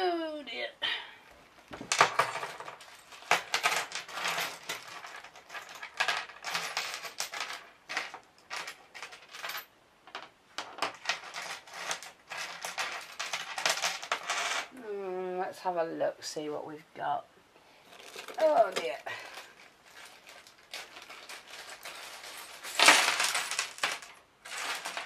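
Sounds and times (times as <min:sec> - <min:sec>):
small hard pieces clinking: 0:01.8 - 0:14.7, 0:17.9 - 0:25.0.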